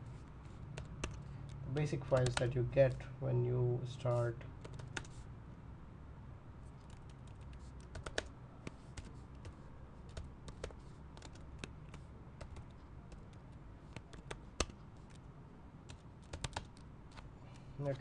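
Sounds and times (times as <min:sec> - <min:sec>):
low steady hum: 0:00.0 - 0:18.0
computer keyboard typing: 0:00.7 - 0:01.3, 0:02.0 - 0:02.6, 0:04.6 - 0:05.2, 0:06.8 - 0:15.3, 0:15.9 - 0:17.3.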